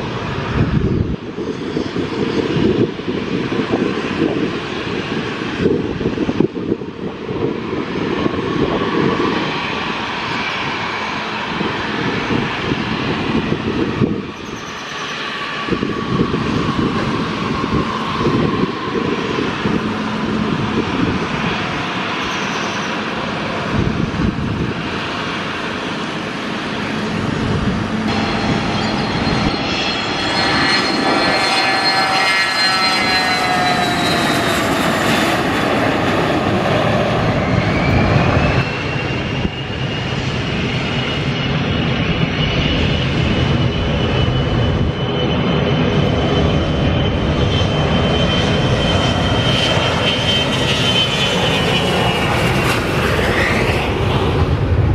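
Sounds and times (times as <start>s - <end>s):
jet engines running: 0.0s - 54.9s
high engine whine: 9.5s - 54.9s.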